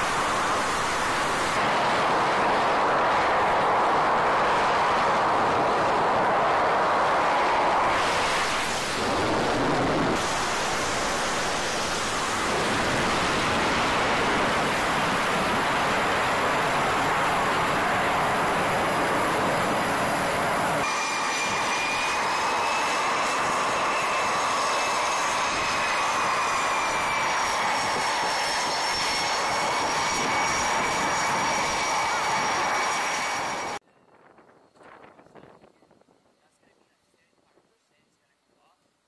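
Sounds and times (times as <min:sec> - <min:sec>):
high engine whine: 0:00.0 - 0:33.8
jet engines roaring: 0:00.0 - 0:33.8.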